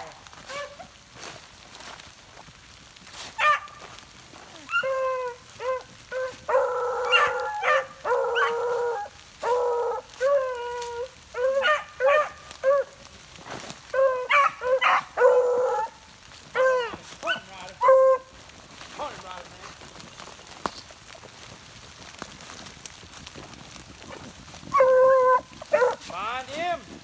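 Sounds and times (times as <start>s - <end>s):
dogs baying: 4.6s - 13.0s, 13.9s - 18.3s, 24.1s - 26.1s.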